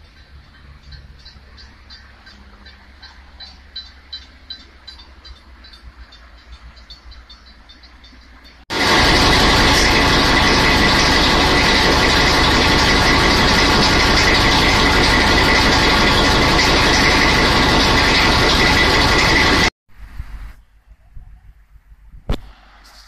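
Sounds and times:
diesel engine running: 0:08.7 - 0:19.7.

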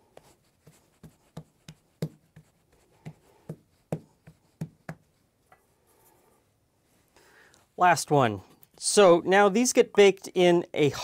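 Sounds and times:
hands slapping dough on board: 0:00.1 - 0:05.1.

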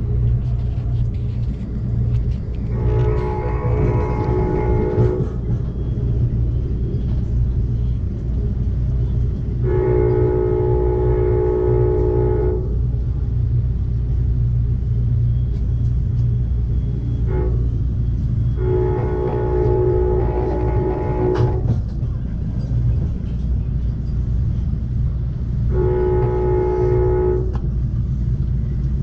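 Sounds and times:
moving train rumble: 0:00.0 - 0:29.0
train horn blasts: 0:02.5 - 0:05.6, 0:09.4 - 0:13.2, 0:17.1 - 0:22.0, 0:25.3 - 0:28.2.

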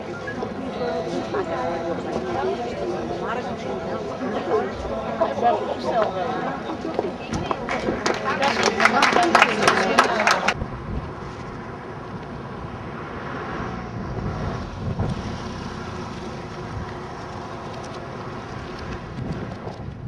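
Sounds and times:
wind blowing across microphone: 0:10.5 - 0:20.0.

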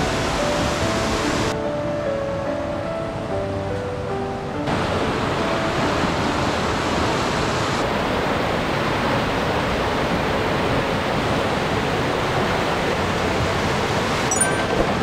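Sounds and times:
stream rushing over rocks: 0:04.7 - 0:15.0.

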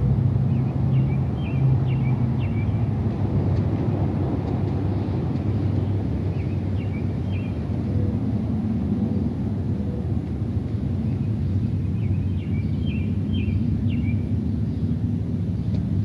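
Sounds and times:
low outdoor rumble: 0:00.0 - 0:16.0
small bird chirping: 0:11.9 - 0:14.9.

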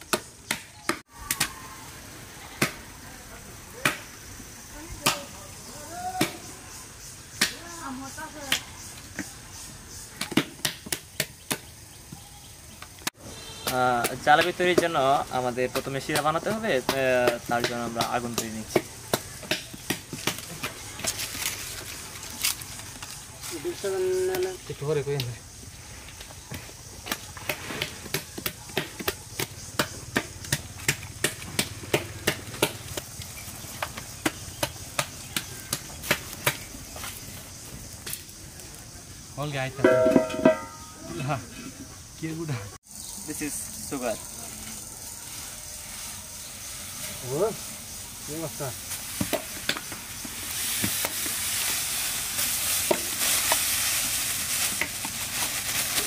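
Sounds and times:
dry leaves and twigs crackling in fire: 0:00.2 - 0:41.4, 0:42.8 - 0:56.0
faint hiss: 0:00.3 - 0:28.1, 0:40.5 - 0:56.0.

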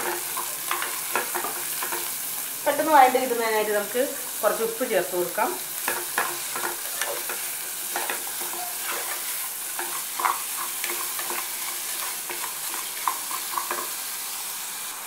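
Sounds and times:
shallots sizzling in oil: 0:00.0 - 0:15.0
wooden spoon scraping a pot: 0:05.8 - 0:13.9.

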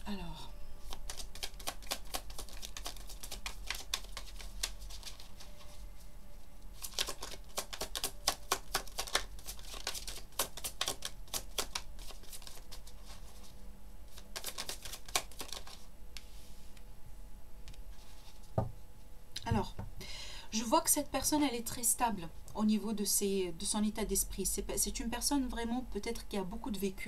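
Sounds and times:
cards being shuffled: 0:00.8 - 0:05.8, 0:06.4 - 0:16.4.

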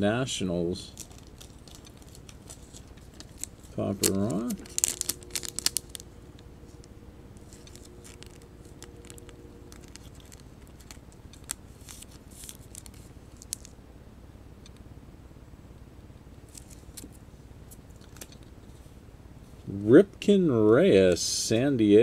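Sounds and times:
plastic card sleeve crinkling: 0:00.9 - 0:13.8, 0:16.5 - 0:18.8.

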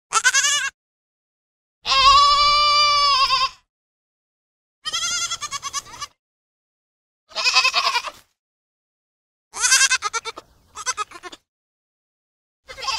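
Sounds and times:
goat bleating: 0:00.1 - 0:00.8, 0:01.9 - 0:03.6, 0:04.8 - 0:06.2, 0:07.3 - 0:08.2, 0:09.5 - 0:11.4, 0:12.7 - 0:12.9.

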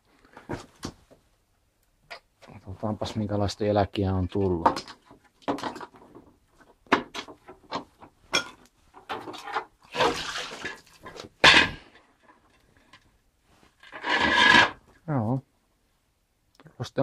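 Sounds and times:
water pouring and splashing: 0:09.9 - 0:11.1.

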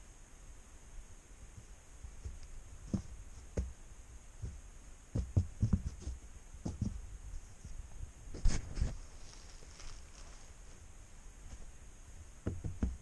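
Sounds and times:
soft thumps and knocks: 0:01.5 - 0:03.8, 0:04.4 - 0:10.3, 0:12.4 - 0:13.0.

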